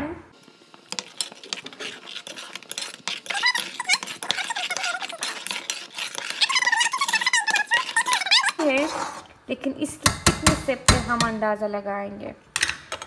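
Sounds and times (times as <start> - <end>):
metal spoon scraping a steel pot: 0.9 - 9.3.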